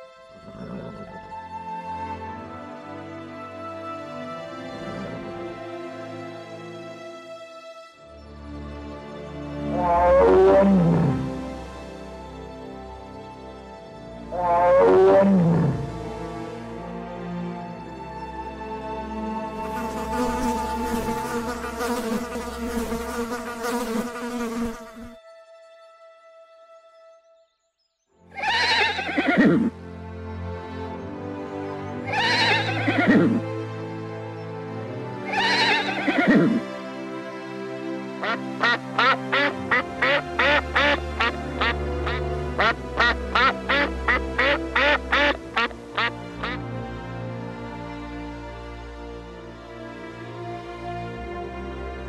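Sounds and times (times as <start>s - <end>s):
background music: 0.0s - 52.0s
honeybees buzzing: 19.5s - 25.2s, 38.2s - 46.6s
duck quacking: 32.1s - 33.4s, 35.3s - 36.6s, 38.2s - 46.6s.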